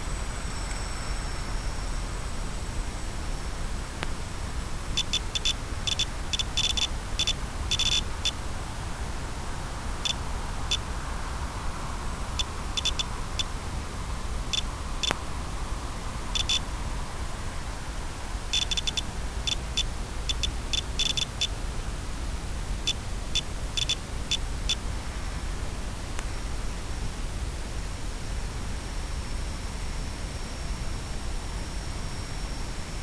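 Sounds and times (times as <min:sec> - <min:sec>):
static hiss: 0:00.0 - 0:33.0
high-pitched electronic ticks: 0:05.0 - 0:08.4, 0:10.0 - 0:10.8, 0:12.4 - 0:13.5, 0:14.5 - 0:15.2, 0:16.4 - 0:16.6, 0:18.5 - 0:21.5, 0:22.9 - 0:24.8.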